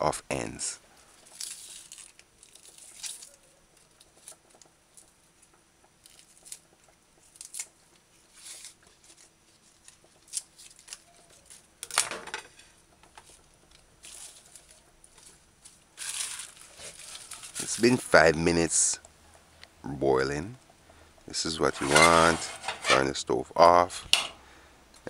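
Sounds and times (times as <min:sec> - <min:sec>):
scallion leaves rustling and snapping: 0:01.2 - 0:05.2, 0:06.0 - 0:12.1, 0:13.1 - 0:18.8.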